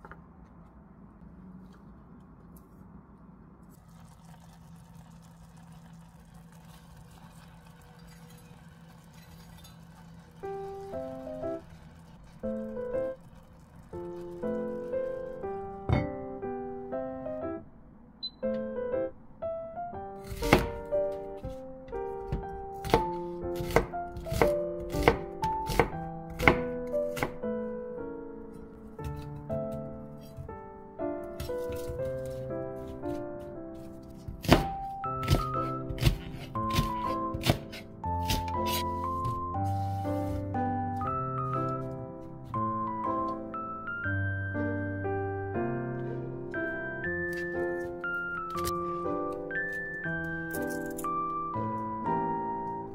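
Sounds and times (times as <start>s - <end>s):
knife slicing onion on cutting board: 22.3s - 27.4s, 34.2s - 40.4s.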